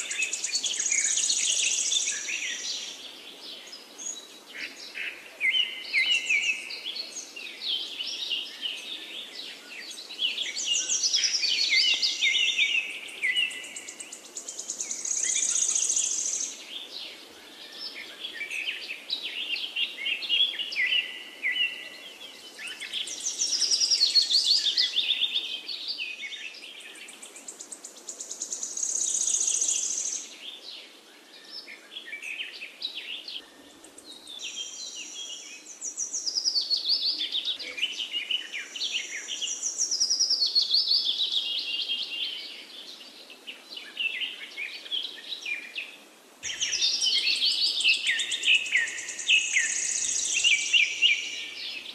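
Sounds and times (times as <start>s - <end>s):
birds chirping and trilling: 0.0s - 51.9s.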